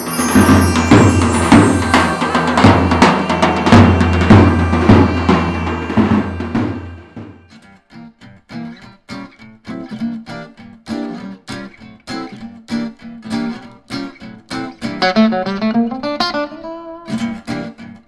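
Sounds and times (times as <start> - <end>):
intro music with drum beat: 0.0 - 7.5.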